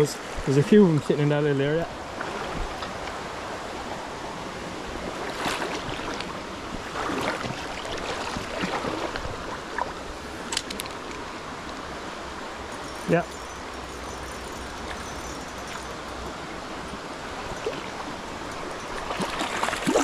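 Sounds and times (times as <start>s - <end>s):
river water rushing: 0.0s - 20.0s.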